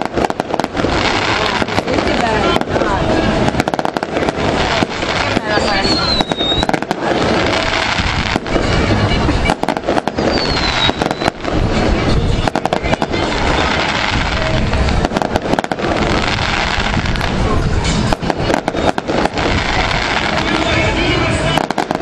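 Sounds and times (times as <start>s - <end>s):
continuous rumble: 0.0s - 22.0s
fireworks bangs and crackles: 0.0s - 22.0s
falling whistle: 5.6s - 6.8s, 10.1s - 11.4s.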